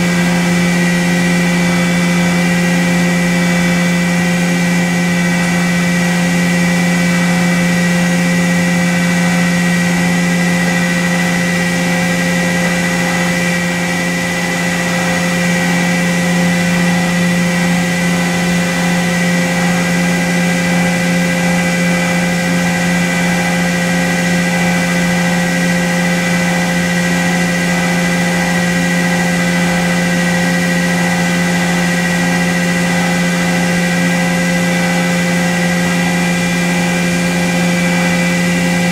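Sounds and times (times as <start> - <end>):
milling machine hum and whine: 0.0 - 38.9.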